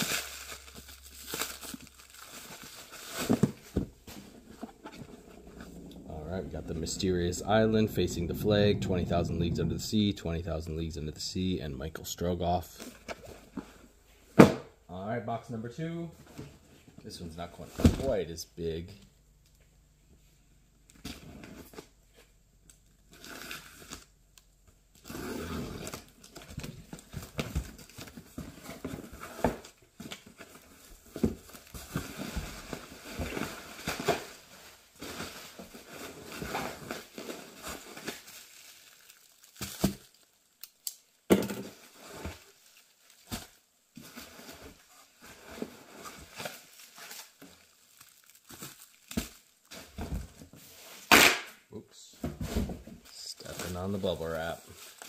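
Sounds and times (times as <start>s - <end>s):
bubble wrap and plastic crinkling: 0.0s - 7.2s, 25.8s - 51.1s, 52.5s - 55.0s
packing tape tearing: 51.0s - 51.6s.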